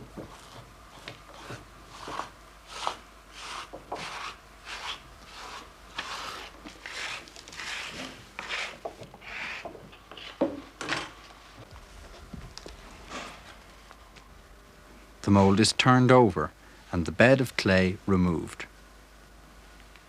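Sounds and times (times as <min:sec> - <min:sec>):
stiff brush scrubbing plaster: 0:00.3 - 0:09.6.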